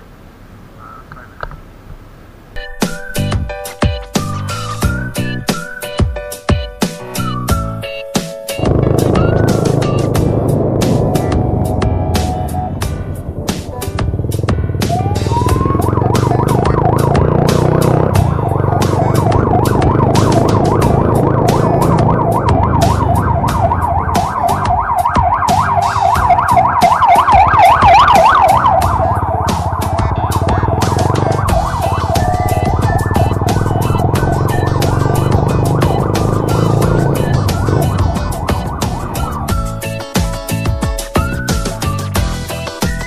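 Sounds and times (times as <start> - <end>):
fast ticking beat: 8.5 - 43.0
siren-like wail: 14.8 - 39.6.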